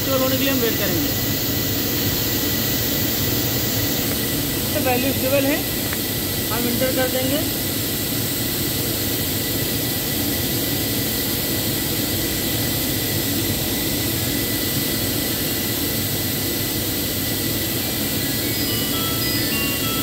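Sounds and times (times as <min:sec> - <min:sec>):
machinery drone: 0:00.0 - 0:07.8, 0:11.6 - 0:20.0
thin high whine: 0:00.0 - 0:07.8, 0:13.1 - 0:20.0.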